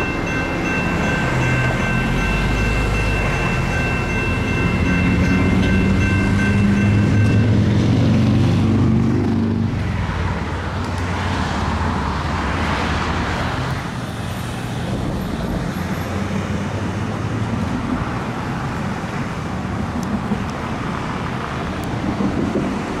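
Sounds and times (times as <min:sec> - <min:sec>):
railroad crossing bell ringing: 0:00.0 - 0:08.4
low rumble of cars: 0:00.0 - 0:23.0
road traffic passing: 0:00.0 - 0:23.0.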